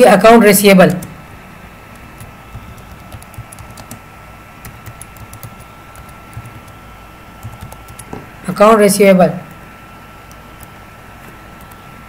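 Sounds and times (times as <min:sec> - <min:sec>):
computer keyboard typing: 0:01.9 - 0:04.0, 0:04.6 - 0:06.8, 0:07.4 - 0:08.2, 0:11.6 - 0:11.8.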